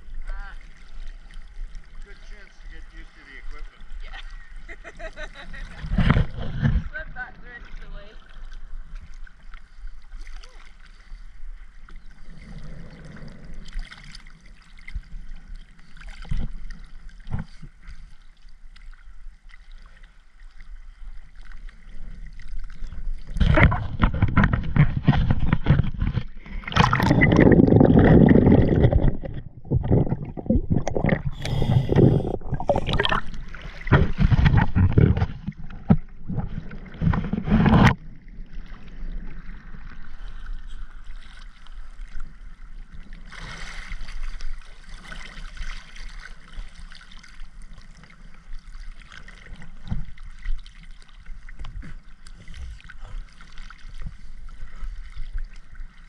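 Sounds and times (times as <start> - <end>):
steady water hiss: 0.0 - 5.9, 26.3 - 34.6
underwater exhaust bubbles gurgling: 21.4 - 40.2.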